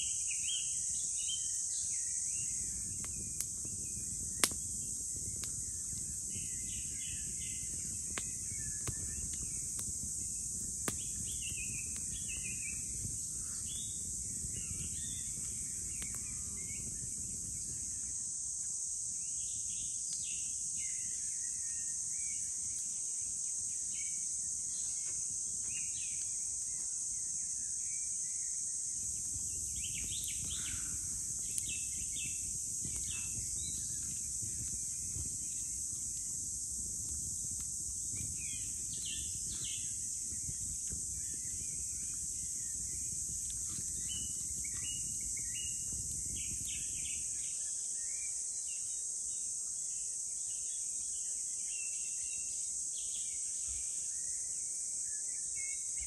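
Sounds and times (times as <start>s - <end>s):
insects droning: 0.0s - 56.0s
campfire crackling and popping: 2.4s - 18.8s, 28.8s - 47.4s.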